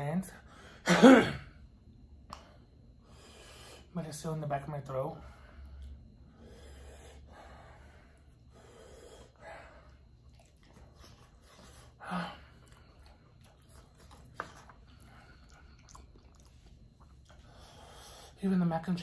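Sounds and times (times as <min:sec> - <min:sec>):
man chewing food: 0:05.4 - 0:18.4.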